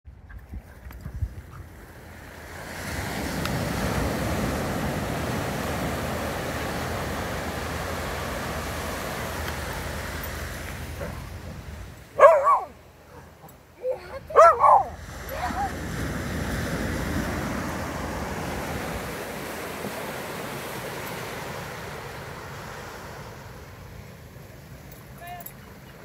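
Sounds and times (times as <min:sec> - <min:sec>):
ocean surf: 0:01.6 - 0:26.0
dog barking: 0:12.2 - 0:15.7.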